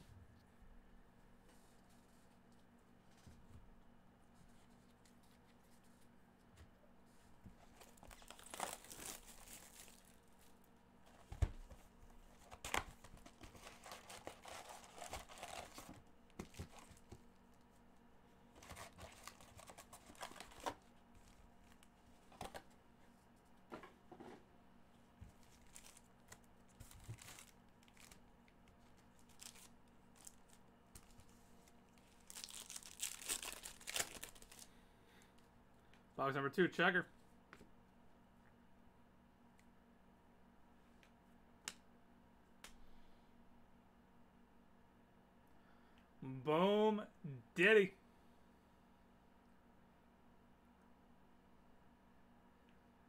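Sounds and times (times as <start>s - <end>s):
wrapper crinkling and rustling: 7.7s - 11.2s, 12.4s - 17.2s, 18.6s - 22.6s, 25.3s - 28.3s, 29.0s - 34.7s.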